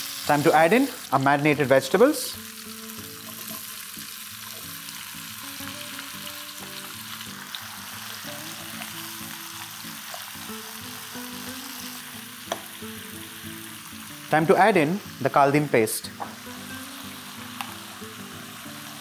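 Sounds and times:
soft background music: 0.0s - 19.0s
vegetables sizzling in oil: 0.0s - 19.0s.

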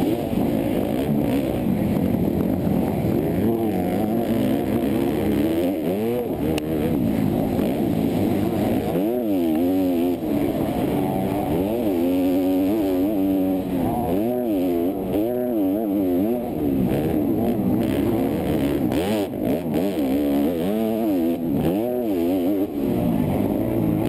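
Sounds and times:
motocross bike engine revving: 0.0s - 24.0s.

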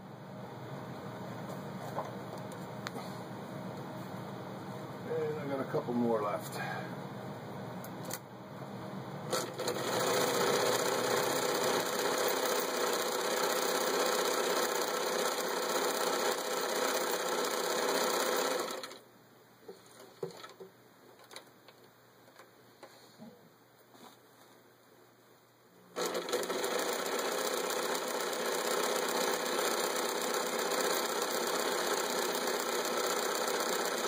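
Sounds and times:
sewing machine stitching: 9.3s - 19.0s, 26.0s - 34.0s.

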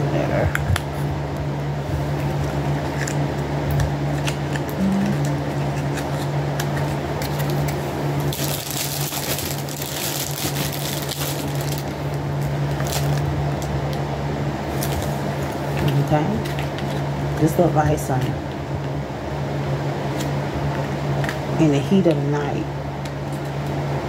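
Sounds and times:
electric fan humming: 0.0s - 24.0s
packaging rustling and clicks: 4.2s - 13.7s.

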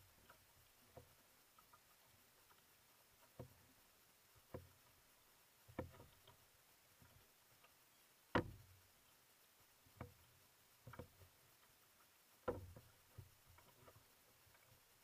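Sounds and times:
paddle strokes knocking on canoe: 5.7s - 6.4s, 8.3s - 8.7s, 12.4s - 14.0s.

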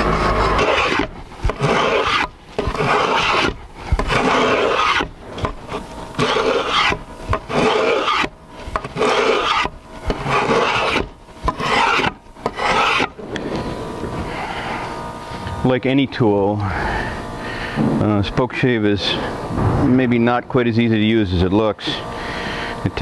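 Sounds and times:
spokeshave rasping on wood: 0.0s - 13.2s.

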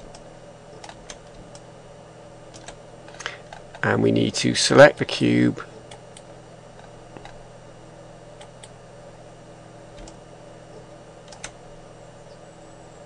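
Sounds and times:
low electrical hum: 0.0s - 13.0s
computer mouse clicks: 2.5s - 3.8s, 5.9s - 7.4s, 9.9s - 11.6s.

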